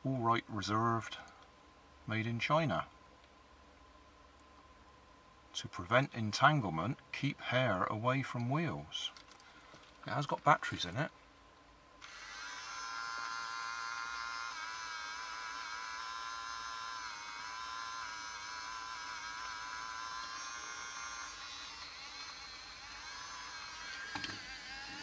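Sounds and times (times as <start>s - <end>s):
small electric motor buzzing: 12.0s - 25.0s.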